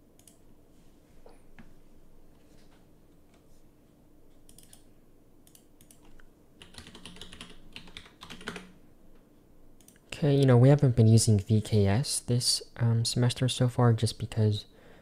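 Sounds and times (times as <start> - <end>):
computer keyboard typing: 4.5 - 4.8, 5.5 - 8.8.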